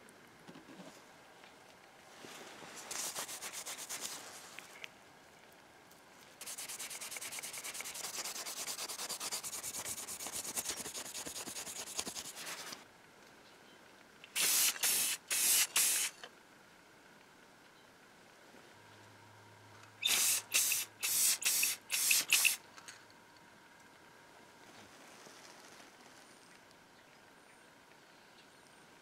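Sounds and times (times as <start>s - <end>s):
spray can hissing: 6.4s - 12.5s, 14.3s - 16.2s, 20.0s - 22.6s.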